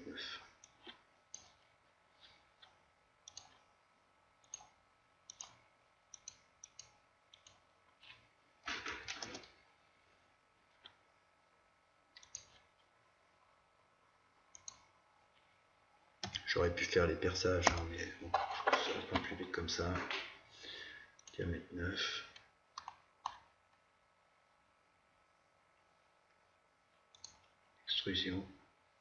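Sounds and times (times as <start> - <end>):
computer mouse clicks: 0.6 - 3.7, 4.4 - 8.2, 8.9 - 9.6, 12.2 - 12.7, 14.5 - 14.9, 16.2 - 16.5, 22.3 - 23.5, 27.1 - 27.5.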